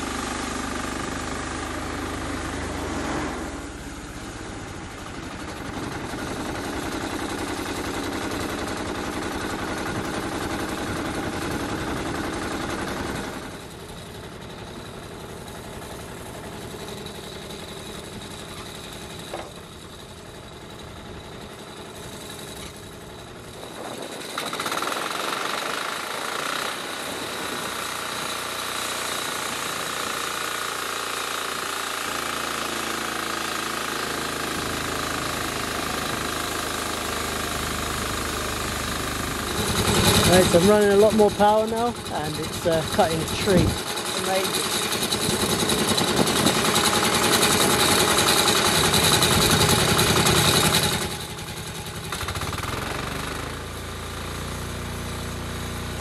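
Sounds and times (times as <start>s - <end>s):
sawmill engine revving: 0.0s - 56.0s
saw blade cutting log: 25.3s - 53.4s.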